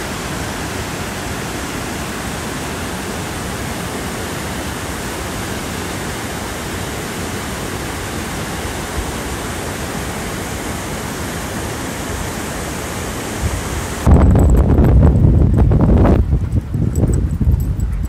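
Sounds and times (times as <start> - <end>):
creek rushing over rocks: 0.0 - 16.9
low rumbling and knocking: 14.1 - 18.0.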